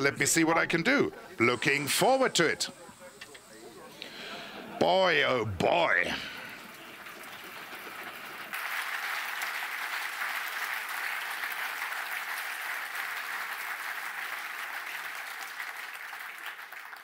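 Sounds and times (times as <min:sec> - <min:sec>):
audience applauding: 0:05.8 - 0:17.0.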